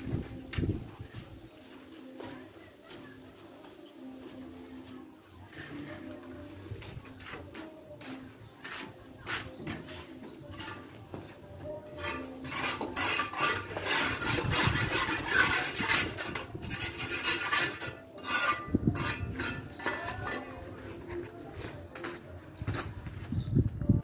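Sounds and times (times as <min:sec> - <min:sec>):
tool scraping concrete: 0:05.4 - 0:11.1, 0:11.9 - 0:22.2.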